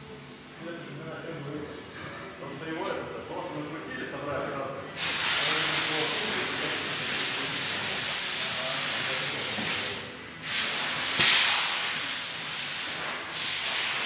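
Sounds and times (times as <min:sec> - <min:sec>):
steady loud hiss: 0:04.8 - 0:14.0.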